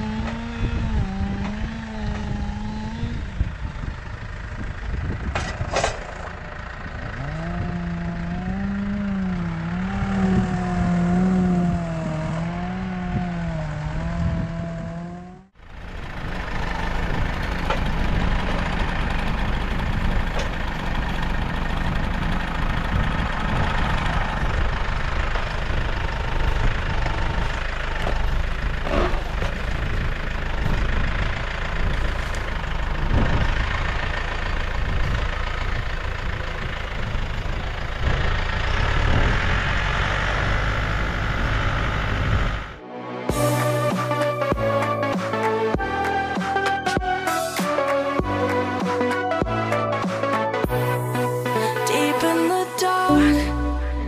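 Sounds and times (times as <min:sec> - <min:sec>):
tractor engine running: 0:00.0 - 0:54.0
wavering pitched tone: 0:43.2 - 0:54.0.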